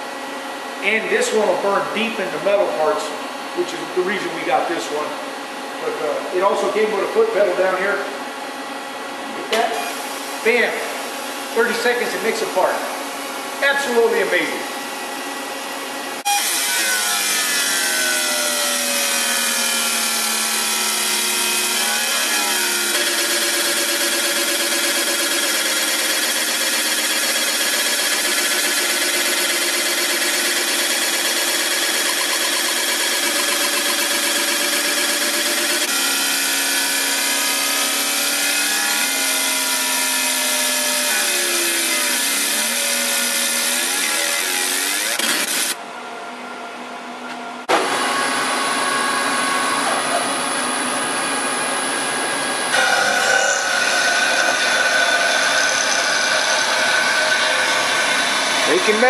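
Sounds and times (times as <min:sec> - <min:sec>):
milling machine cutting metal: 0:16.3 - 0:45.8, 0:48.6 - 0:59.0.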